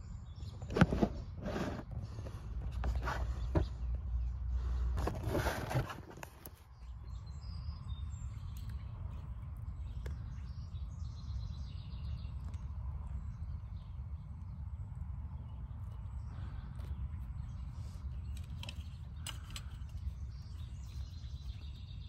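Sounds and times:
steady low rumble: 0.0 - 5.5, 6.2 - 22.0
faint bird chirps: 6.5 - 22.0.

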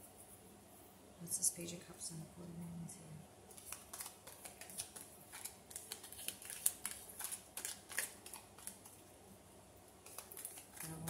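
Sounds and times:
cards clicking and rustling: 3.5 - 9.0, 10.0 - 11.0.

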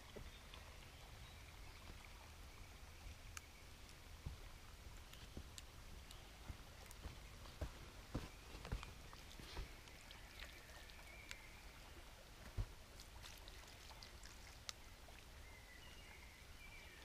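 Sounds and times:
footsteps on forest floor: 6.4 - 10.0.

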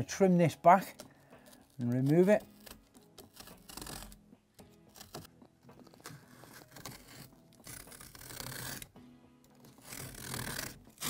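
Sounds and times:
quiet music: 0.0 - 11.0
knife scraping through felt: 0.7 - 9.0, 9.6 - 11.0.

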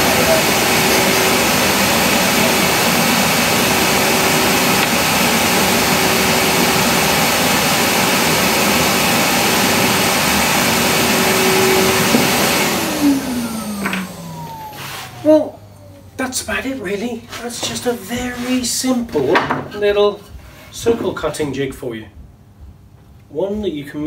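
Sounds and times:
bandsaw winding down: 0.0 - 15.8
bandsaw whirring: 0.0 - 16.0.

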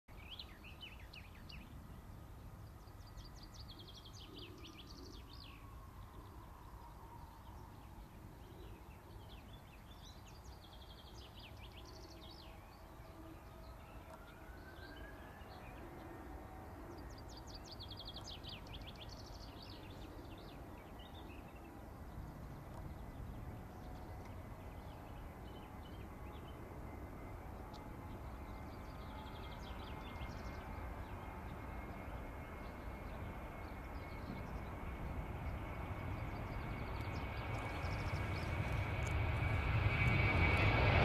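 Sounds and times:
distant jet engine whine: 0.1 - 41.0
low rumbling noise: 13.0 - 41.0.

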